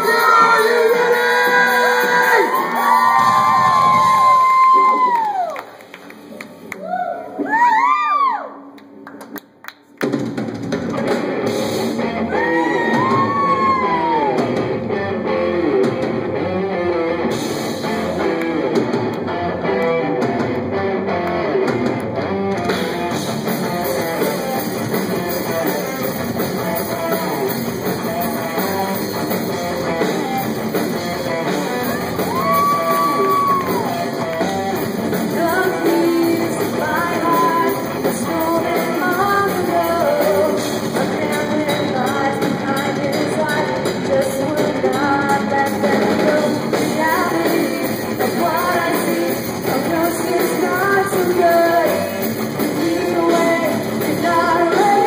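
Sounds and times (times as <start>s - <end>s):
person singing: 0.0s - 3.1s, 31.6s - 55.0s
drums: 0.0s - 55.0s
electric guitar: 10.0s - 55.0s.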